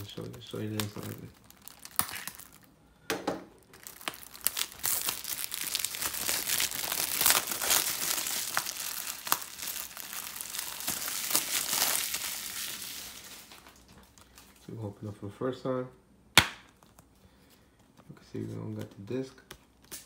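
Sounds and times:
plastic shrink wrap crinkling: 0.0s - 2.7s, 3.6s - 14.8s.

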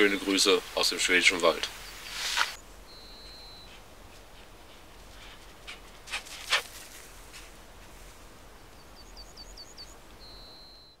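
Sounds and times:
bird chirping: 0.0s - 3.8s, 8.6s - 11.0s
outdoor ambience: 0.0s - 11.0s.

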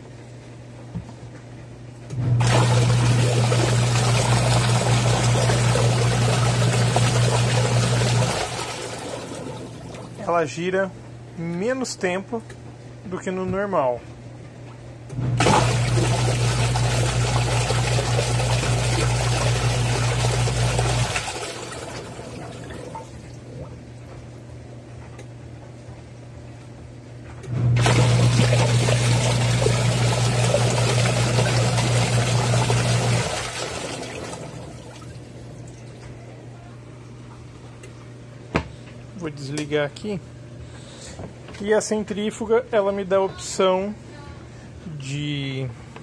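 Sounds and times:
washing machine motor humming: 1.8s - 12.4s, 13.4s - 40.2s
water churning in wash tub: 2.3s - 10.3s, 15.4s - 24.1s, 27.8s - 36.1s.

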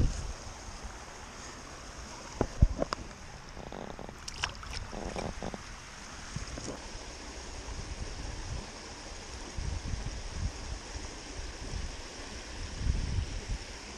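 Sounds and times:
rushing water: 0.0s - 13.9s
fish splashing into water: 4.1s - 5.5s.

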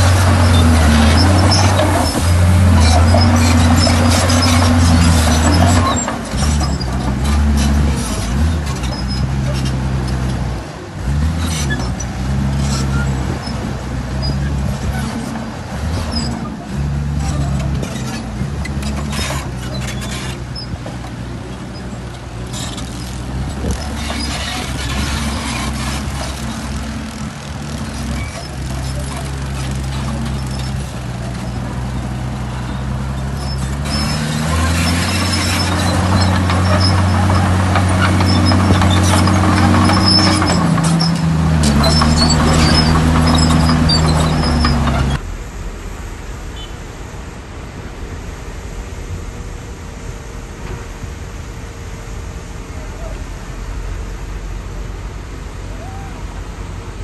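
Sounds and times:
rattling and clanking: 0.0s - 45.3s
bulldozer diesel engine working: 0.0s - 57.0s.

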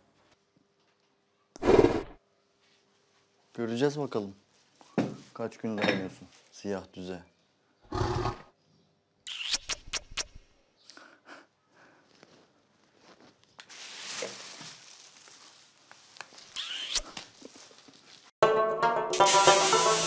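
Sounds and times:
plastic bag rustling: 12.8s - 18.3s
music: 18.4s - 20.0s.

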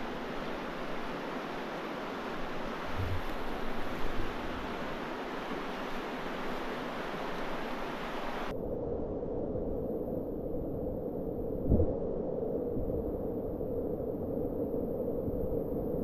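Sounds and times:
rushing churning water: 0.0s - 8.5s.

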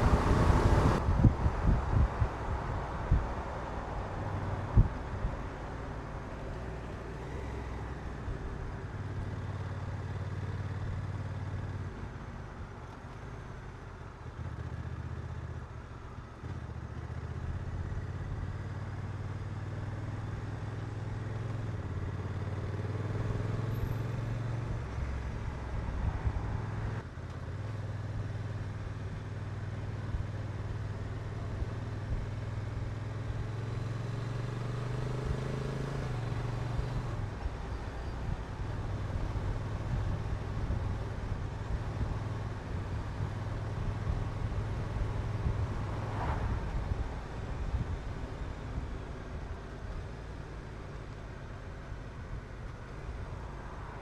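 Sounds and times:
motorcycle engine revving: 31.8s - 37.5s.

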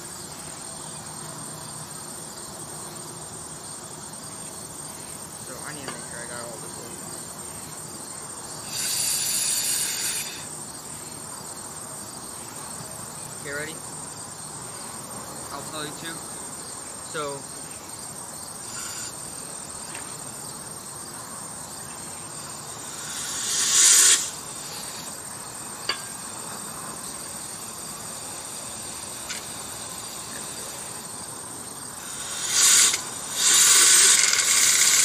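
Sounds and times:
crickets chirring: 0.0s - 35.0s
compressed air hissing: 4.8s - 11.3s, 18.5s - 20.4s, 22.0s - 35.0s
impeller spinning up: 32.2s - 35.0s.

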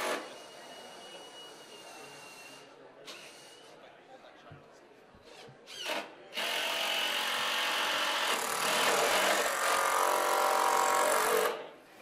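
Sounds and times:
cordless drill boring into wood: 5.7s - 11.6s.

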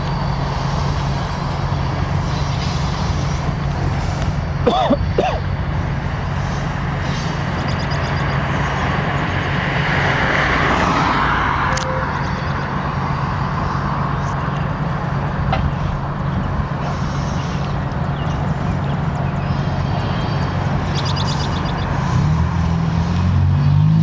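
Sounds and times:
train cars rumbling over bridge: 0.0s - 24.0s.

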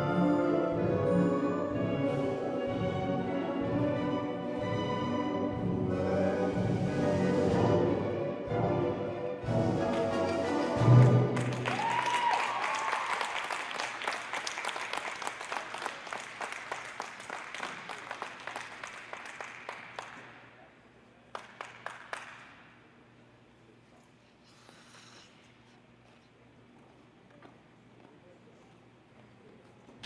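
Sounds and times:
audience applauding: 11.0s - 20.4s, 21.3s - 22.6s.

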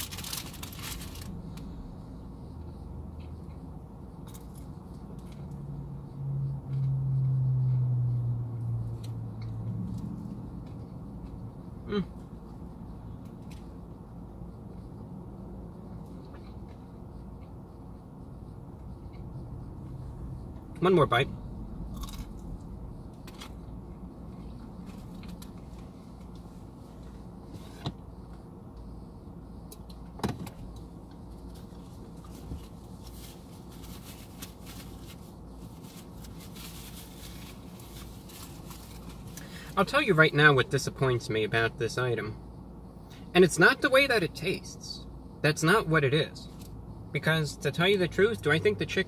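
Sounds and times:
low background hum: 0.0s - 49.0s
chewing crispy chicken: 21.9s - 22.4s.

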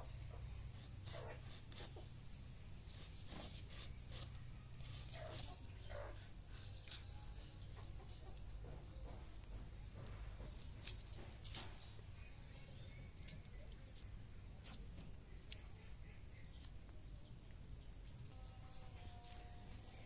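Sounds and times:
knife scraping fish scales: 0.0s - 2.2s, 2.8s - 7.4s.

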